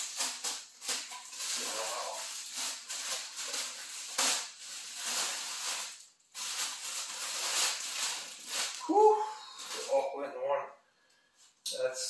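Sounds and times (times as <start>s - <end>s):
packaging rustling and crackling: 0.0s - 9.0s, 9.6s - 10.0s.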